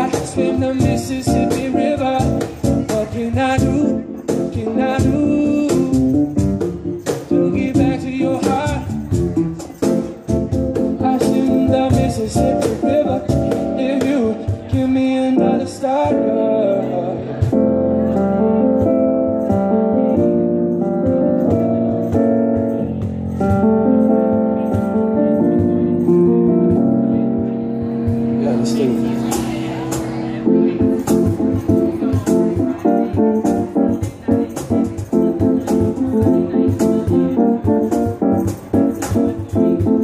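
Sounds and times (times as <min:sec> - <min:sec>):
man singing into a microphone: 0:00.0 - 0:06.4, 0:07.0 - 0:09.2, 0:10.8 - 0:17.6
keyboard accompaniment: 0:00.0 - 0:40.0.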